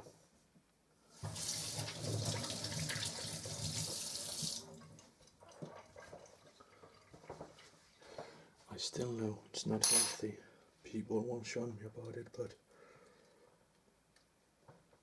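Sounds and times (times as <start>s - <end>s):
water running into steel sink: 1.2s - 7.5s.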